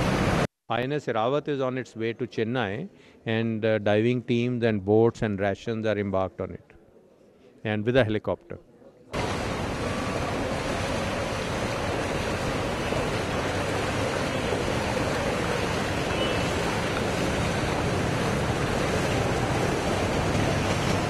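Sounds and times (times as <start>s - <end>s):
auto-rickshaw driving through water: 0.0s - 0.5s, 9.2s - 21.0s
water rushing on a flooded street: 0.0s - 0.5s, 9.2s - 21.0s.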